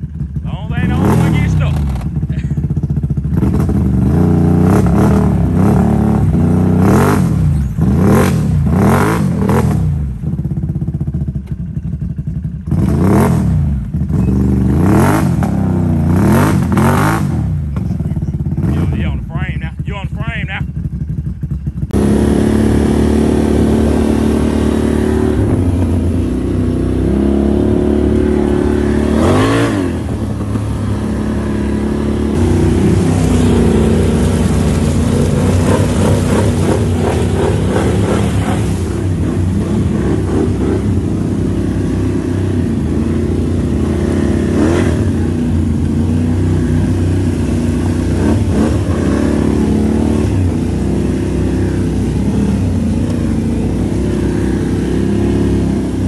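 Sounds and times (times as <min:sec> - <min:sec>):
atv engine revving: 0:00.0 - 0:56.0
mud and water splashing: 0:22.0 - 0:56.0.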